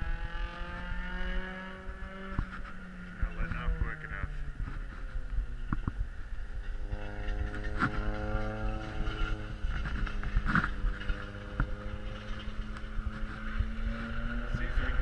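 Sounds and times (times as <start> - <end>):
race car engine passing: 6.4 - 15.0.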